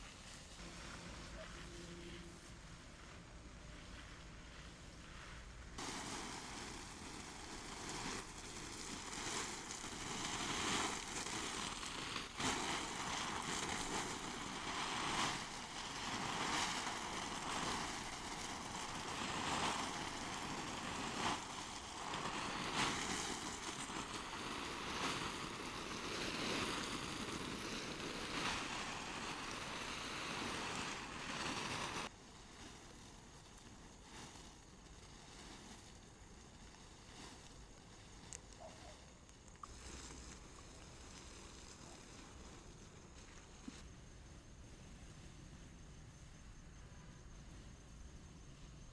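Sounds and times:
garden hose spraying water: 0:00.0 - 0:45.5.

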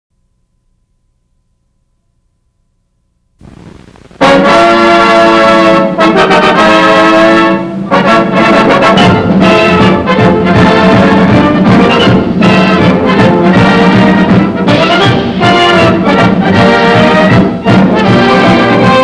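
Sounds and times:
faint hiss: 0:03.4 - 0:04.8
brass-led orchestral music: 0:04.2 - 0:19.0.

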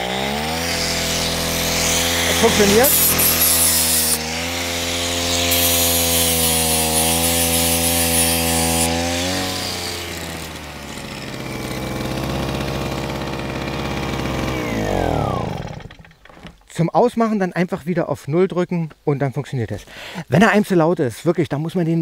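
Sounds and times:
generator running: 0:00.0 - 0:16.5
angle grinder spinning: 0:00.0 - 0:16.6.

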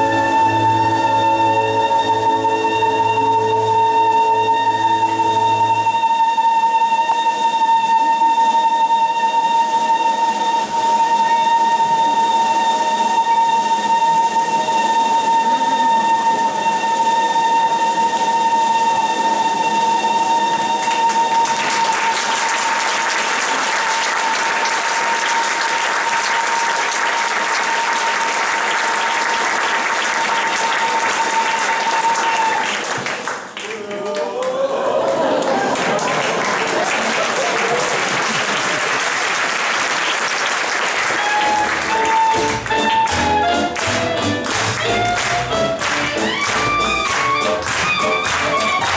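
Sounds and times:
clarinet holding high note: 0:00.0 - 0:29.4, 0:30.1 - 0:32.7, 0:41.0 - 0:48.9
audience applause: 0:10.6 - 0:48.9.

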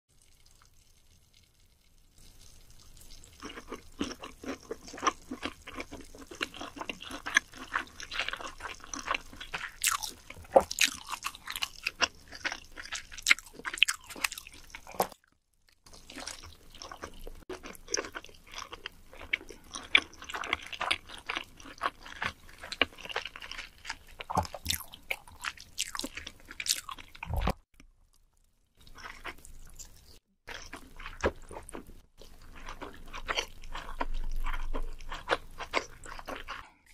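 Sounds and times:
person chewing mouth clicks: 0:22.8 - 0:27.9.

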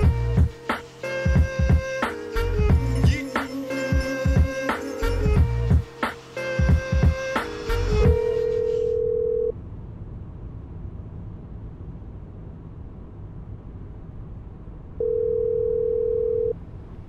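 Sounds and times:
low hum: 0:06.6 - 0:17.0
telephone ringback tone: 0:08.3 - 0:09.5, 0:15.0 - 0:16.6.

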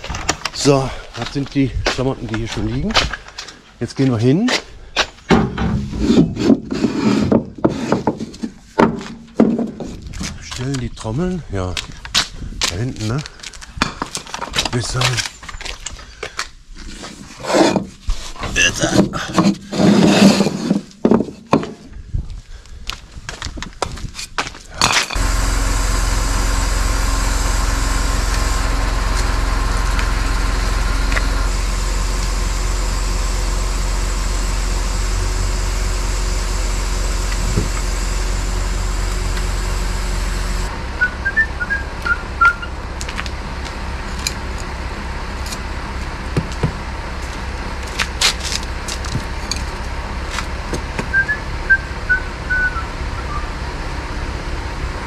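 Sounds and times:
diesel truck engine running: 0:00.0 - 0:03.5, 0:25.1 - 0:55.0
metallic knocks and clanks: 0:05.3 - 0:06.6.

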